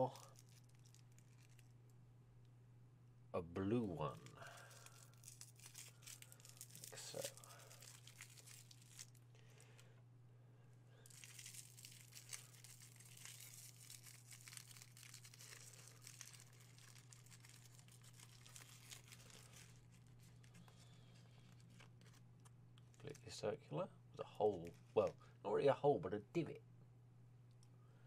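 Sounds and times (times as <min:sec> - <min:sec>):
foil wrapper crinkling: 0:00.0 - 0:01.8, 0:04.1 - 0:09.9, 0:11.0 - 0:23.4.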